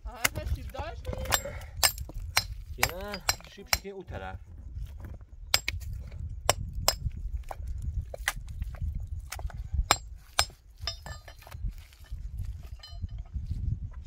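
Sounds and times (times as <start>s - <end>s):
low steady rumble: 0.0s - 14.0s
hammer striking rocks: 1.2s - 3.9s, 5.6s - 7.2s, 9.3s - 11.6s.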